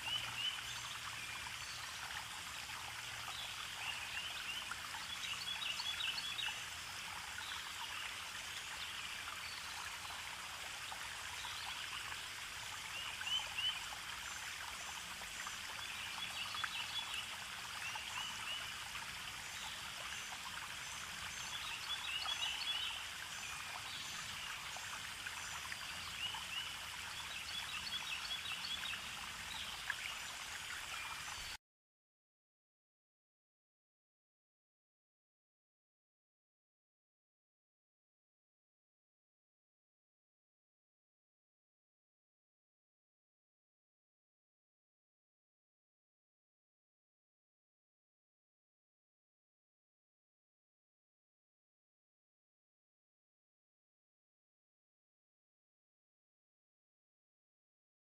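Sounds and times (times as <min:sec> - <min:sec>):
water trickling: 0:00.0 - 0:31.6.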